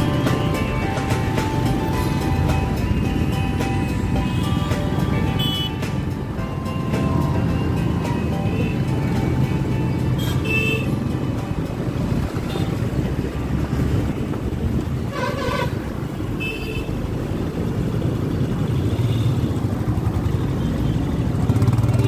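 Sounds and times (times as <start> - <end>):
engine and road rumble: 0.0 - 22.0
car horn toots: 4.2 - 5.8, 15.1 - 17.0
long loud car horn: 5.3 - 5.8, 15.1 - 17.0.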